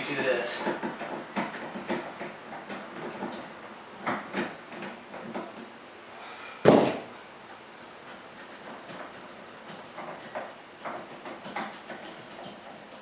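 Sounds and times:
loud metal clunk: 6.6s - 7.1s.

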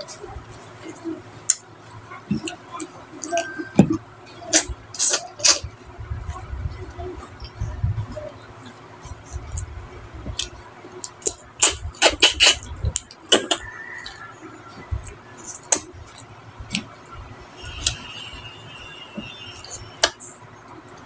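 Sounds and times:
wet chewing: 10.3s - 20.2s.

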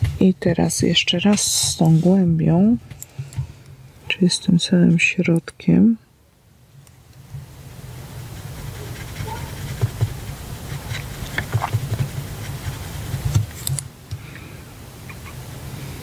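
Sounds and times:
brush tapping in plastic palette: 9.2s - 12.3s.

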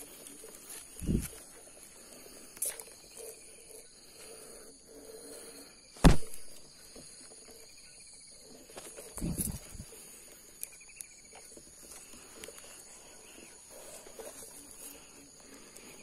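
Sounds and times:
insects buzzing: 0.0s - 16.0s
air rifle shot: 6.0s - 6.4s.

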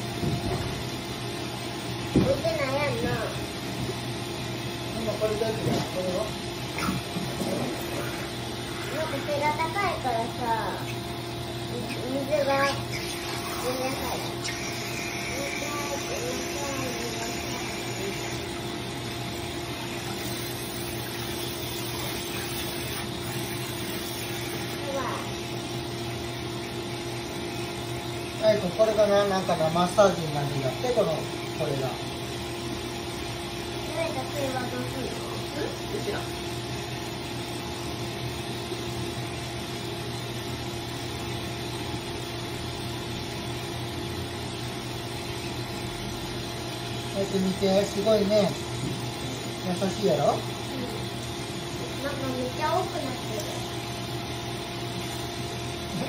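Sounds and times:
pump humming: 0.0s - 56.0s
water rushing from nozzle: 11.8s - 25.4s.

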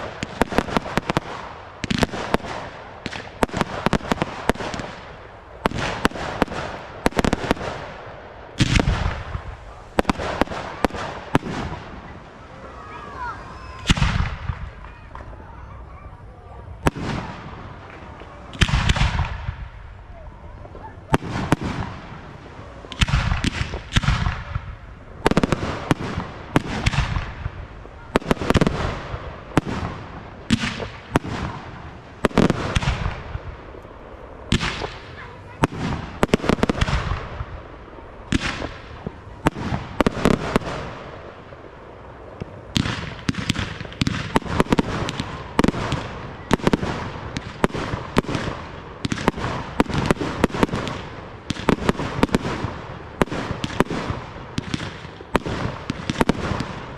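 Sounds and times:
rapid firework pops: 0.0s - 8.0s, 8.6s - 11.8s, 16.8s - 19.7s, 22.9s - 33.5s, 34.5s - 37.6s, 38.3s - 41.1s, 42.4s - 56.9s.

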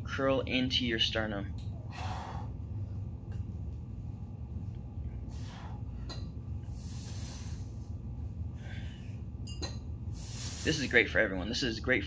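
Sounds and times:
steady low hum: 0.0s - 12.0s
man breathing hard: 1.8s - 2.8s, 5.2s - 9.3s, 10.1s - 10.9s.

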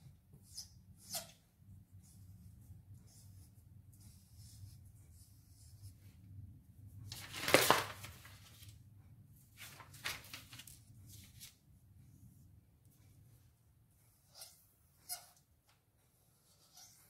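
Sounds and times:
paper sheets rustling: 7.1s - 8.8s, 9.6s - 11.6s.

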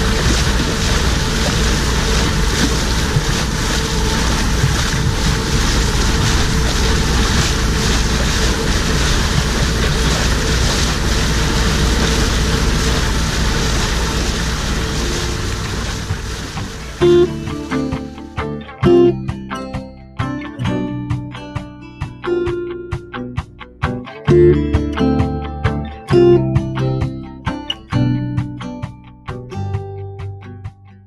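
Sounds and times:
wind buffeting microphone: 0.0s - 18.1s
water rushing past boat: 0.0s - 21.2s, 23.8s - 28.1s.

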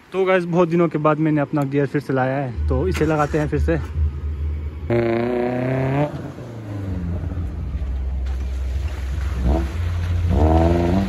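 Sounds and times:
off-road vehicle engine running: 2.4s - 11.0s
tyres splashing through water: 7.1s - 11.0s.

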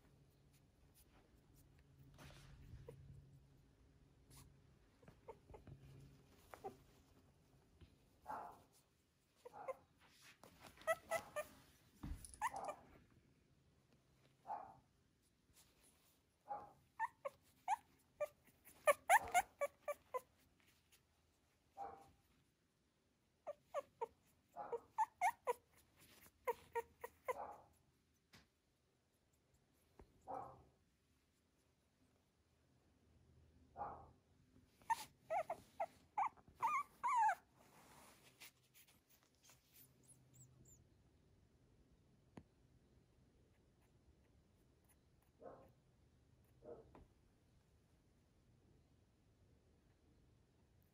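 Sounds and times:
puppy whimpering: 4.4s - 7.0s, 10.6s - 11.6s, 12.2s - 12.8s, 17.0s - 20.5s, 23.4s - 27.4s, 34.8s - 37.6s.

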